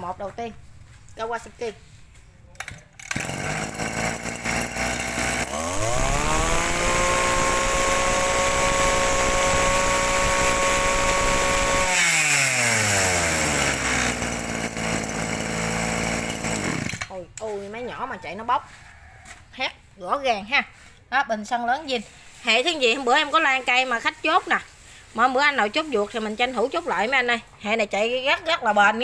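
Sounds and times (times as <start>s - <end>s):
brush cutter engine revving: 3.1s - 17.5s.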